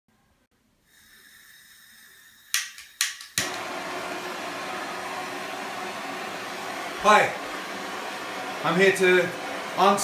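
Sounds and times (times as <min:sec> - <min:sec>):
faint gas hiss: 0:00.6 - 0:03.3
blowtorch flame roaring hiss: 0:03.4 - 0:10.0.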